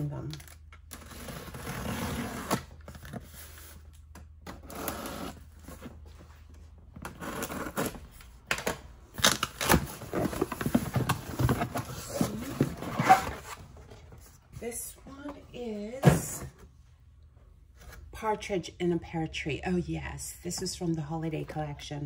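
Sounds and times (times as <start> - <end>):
cardboard scraping and rustling: 9.6 - 14.4.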